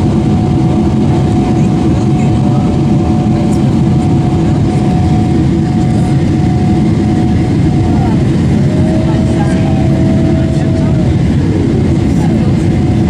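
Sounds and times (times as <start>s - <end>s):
jet engine rumble: 0.0s - 13.0s
steady cabin hum: 0.1s - 13.0s.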